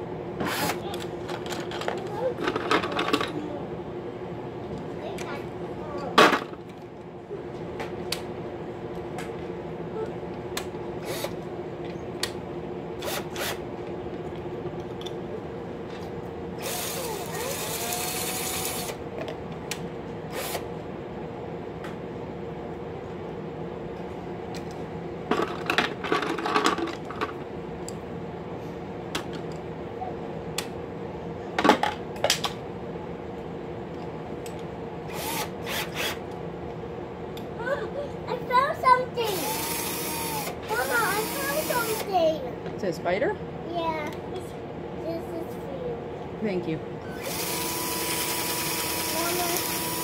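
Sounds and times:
cordless drill motor running: 0.4 - 0.8, 11.0 - 11.4, 13.0 - 13.6, 16.6 - 19.0, 20.3 - 20.6, 35.1 - 36.2, 39.3 - 42.1, 47.1 - 50.0.

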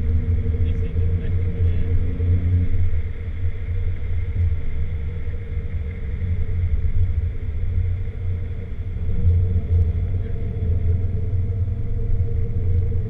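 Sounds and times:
car engine drone inside cabin: 0.0 - 13.0.

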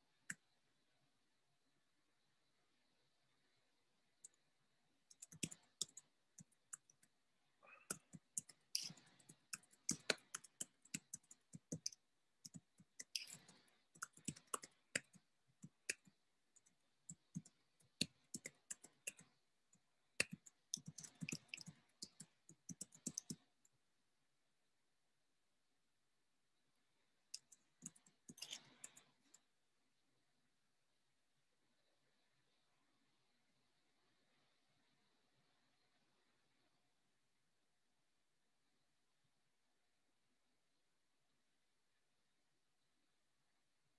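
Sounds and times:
faint keyboard typing: 4.1 - 23.8, 27.3 - 29.6.

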